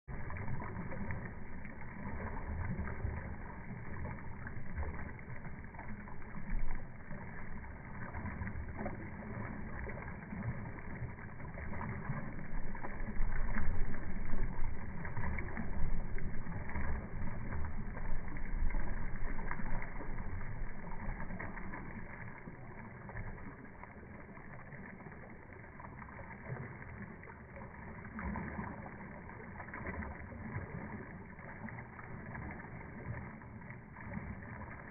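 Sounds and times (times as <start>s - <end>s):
wind rumble on microphone: 0.1s - 23.5s
floodwater rushing: 0.1s - 34.9s.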